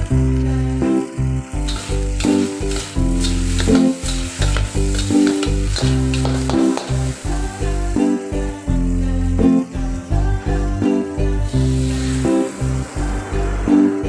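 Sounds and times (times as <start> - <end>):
background music: 0.0 - 14.0
noodles sizzling in a wok: 0.0 - 14.0
metal spatula scraping a wok: 1.7 - 7.0.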